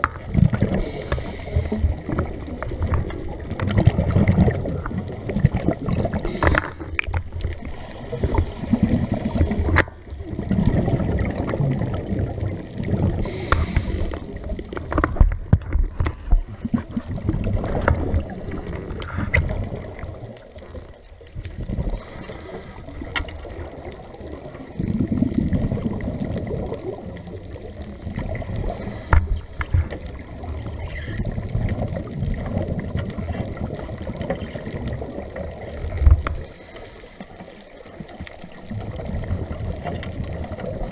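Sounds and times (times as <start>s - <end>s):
small clicks: 0.0s - 3.9s
regulator bubbles gurgling underwater: 0.0s - 40.9s.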